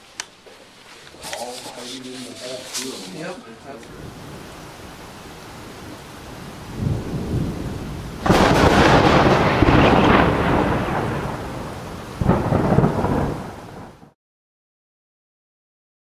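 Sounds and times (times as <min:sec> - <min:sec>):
thunder rumbling and cracking: 0:03.8 - 0:14.2.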